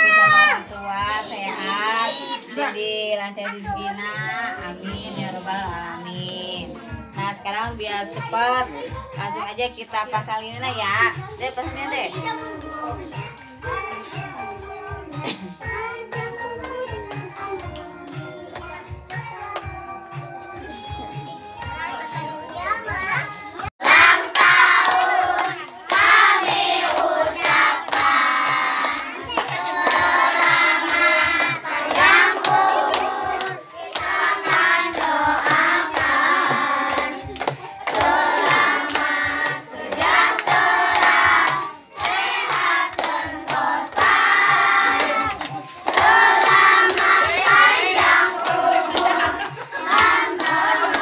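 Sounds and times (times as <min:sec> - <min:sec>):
children clapping hands: 0:15.3 - 0:20.8, 0:21.6 - 0:51.0
children singing in unison: 0:23.8 - 0:51.0.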